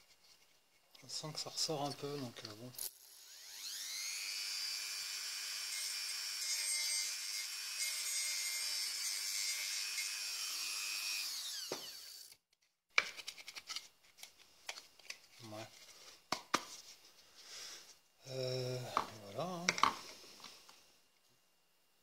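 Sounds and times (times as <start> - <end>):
electric motor whine: 3.0 - 8.8, 10.0 - 12.3.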